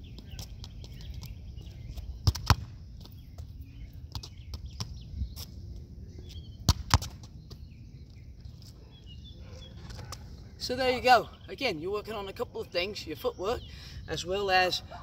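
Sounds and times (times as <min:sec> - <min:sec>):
foot kicking a ball: 0:01.9 - 0:03.2, 0:06.7 - 0:07.6
ball smacking into a curb: 0:02.2 - 0:02.7, 0:06.7 - 0:07.3.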